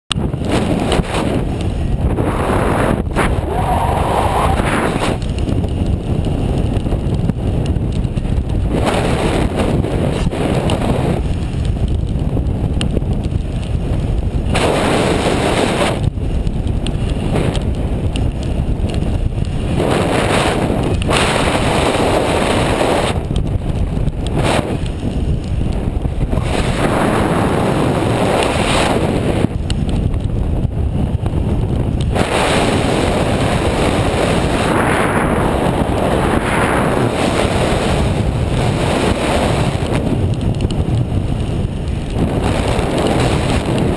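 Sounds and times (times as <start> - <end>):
wind buffeting microphone: 0.1 - 43.9.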